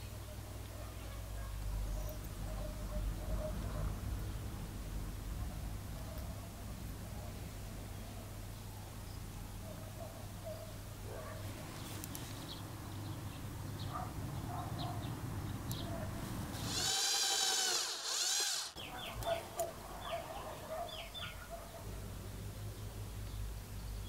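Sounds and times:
birds chirping: 0:11.7 - 0:21.8
small power tool whining: 0:16.6 - 0:18.8.

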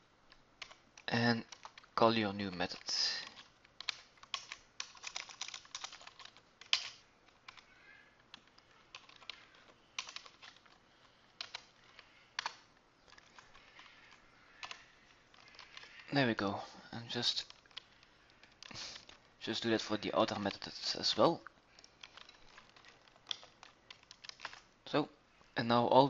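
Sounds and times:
typing on computer keyboard: 0:00.6 - 0:02.0, 0:02.6 - 0:16.1, 0:21.7 - 0:24.7.

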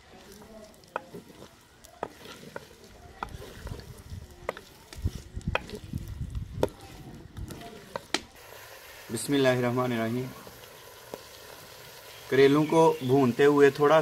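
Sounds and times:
pieces rustling while stirred: 0:00.0 - 0:08.4
vegetables sizzling in a pot: 0:00.0 - 0:14.0
wooden spoon knocking on pot: 0:00.9 - 0:03.8, 0:05.5 - 0:05.8.

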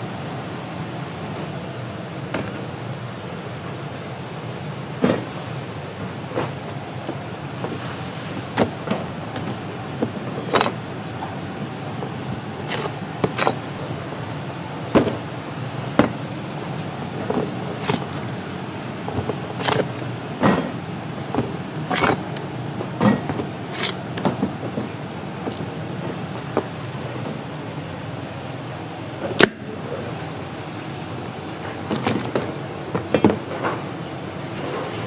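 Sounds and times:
steady background hum: 0:00.0 - 0:35.0
kitchen knocks and clatters: 0:19.1 - 0:22.2, 0:23.0 - 0:25.0.

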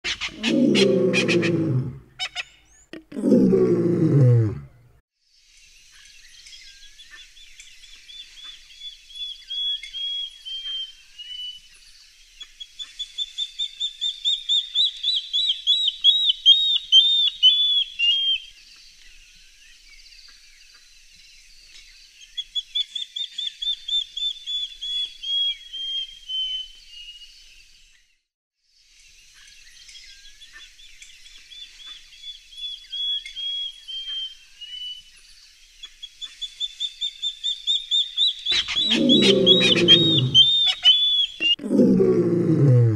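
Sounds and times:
bird piping whistled calls: 0:06.3 - 0:11.8, 0:12.8 - 0:18.5, 0:29.8 - 0:41.6.

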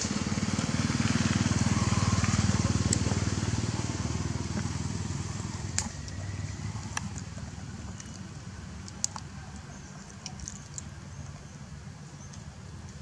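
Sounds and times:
small engine running: 0:00.0 - 0:07.4.

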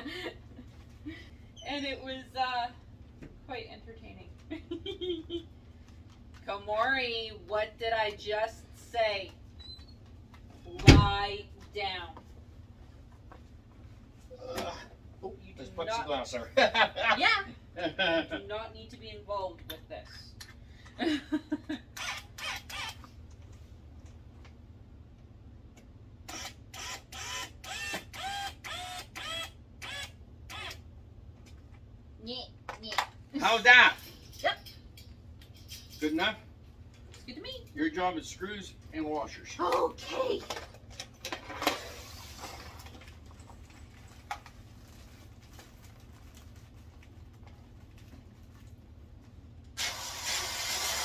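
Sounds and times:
low steady room hum: 0:00.0 - 0:51.0
cordless drill whining: 0:26.3 - 0:30.8
paper bag rustle: 0:41.9 - 0:48.5.

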